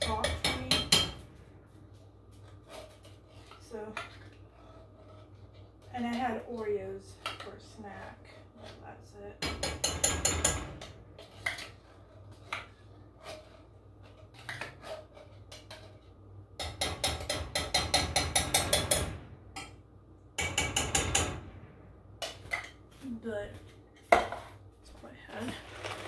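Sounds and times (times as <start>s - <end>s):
cookware and utensils clattering: 0.0s - 1.2s, 2.5s - 19.8s, 23.6s - 24.6s.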